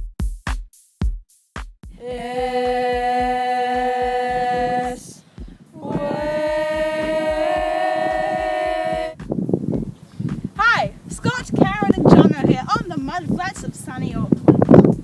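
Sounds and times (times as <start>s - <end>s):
steady beat: 0.0s - 13.8s
long held music chords: 2.0s - 9.2s.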